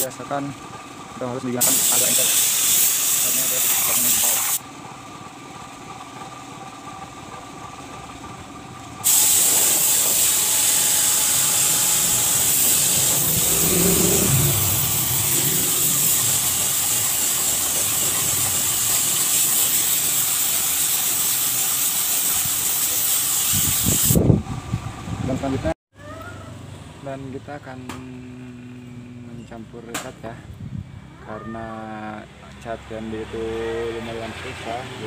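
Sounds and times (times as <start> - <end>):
paint spray gun hissing: 1.6 - 4.6, 9.0 - 24.2.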